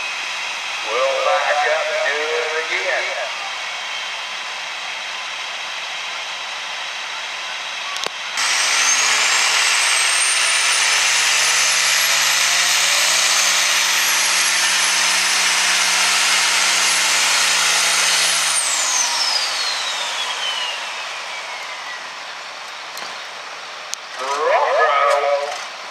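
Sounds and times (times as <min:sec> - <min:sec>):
tractor diesel engine: 0:00.0 - 0:03.5, 0:07.9 - 0:25.9
high whistle climbing in pitch: 0:18.6 - 0:22.2.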